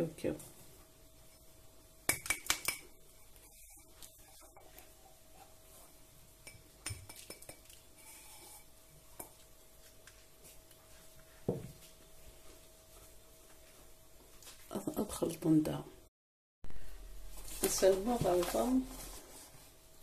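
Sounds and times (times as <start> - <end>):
faint steady hum: 16.7 - 20.0.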